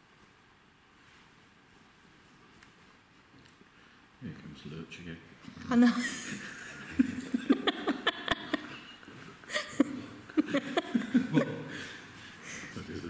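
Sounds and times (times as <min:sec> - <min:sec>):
men laughing: 0:05.8 - 0:12.4.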